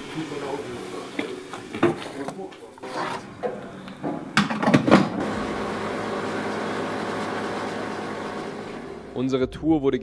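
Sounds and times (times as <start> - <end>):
petrol pump humming: 3.2 - 9.2.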